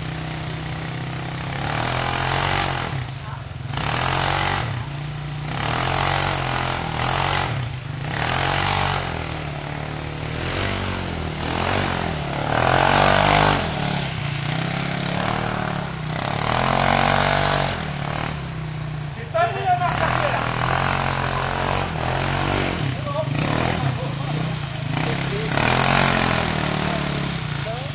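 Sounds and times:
buggy engine revving: 0.0 - 27.9.

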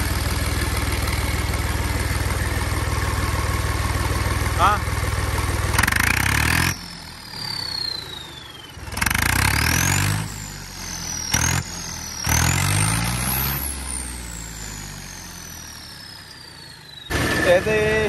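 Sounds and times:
diesel engine revving: 0.0 - 18.0
turbocharger whistle: 5.8 - 18.0.

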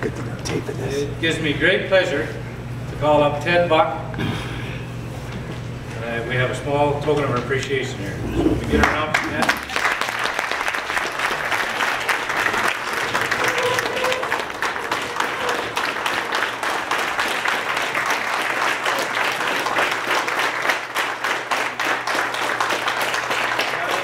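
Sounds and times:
audience applauding: 8.6 - 24.0.

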